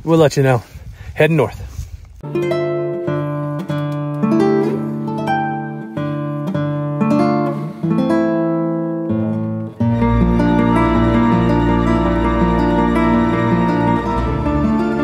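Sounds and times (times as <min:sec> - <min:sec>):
acoustic guitar melody: 0:02.2 - 0:15.0
deeper musical accompaniment: 0:02.2 - 0:15.0.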